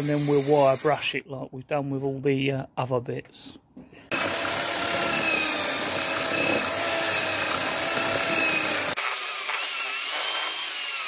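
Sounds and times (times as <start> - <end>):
drill wire brush scrubbing metal: 0.0 - 1.1, 4.1 - 11.0.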